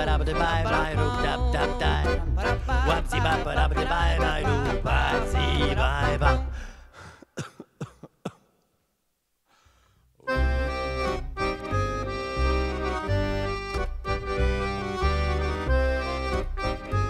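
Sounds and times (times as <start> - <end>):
accordion music: 0.0 - 6.8, 10.2 - 17.0.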